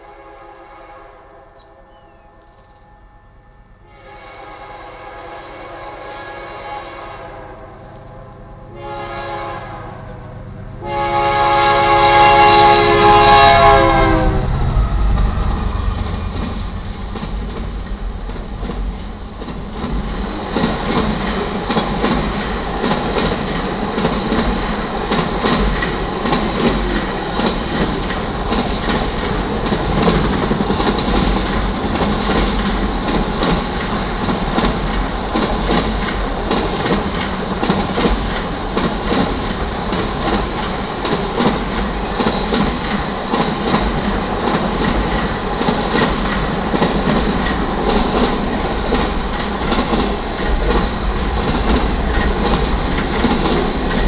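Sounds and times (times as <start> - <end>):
locomotive horn blast: 0.0 - 15.5
freight train rumbling past: 0.0 - 54.0
wheels clicking over rail joints: 16.3 - 54.0.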